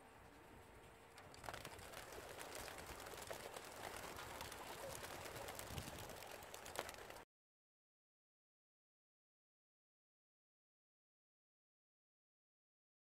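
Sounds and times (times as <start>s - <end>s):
pigeons flapping wings: 1.1s - 7.2s.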